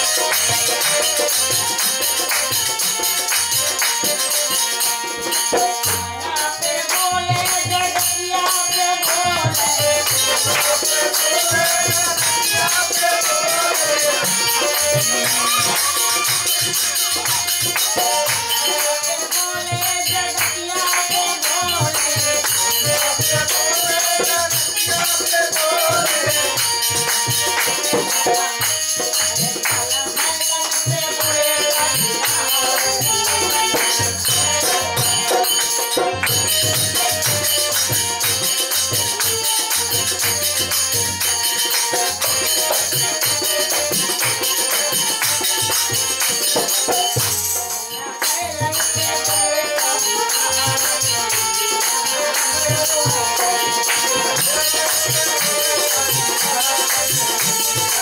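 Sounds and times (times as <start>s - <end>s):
harmonium melody: 0.0s - 58.0s
jingling rattle percussion: 0.0s - 58.0s.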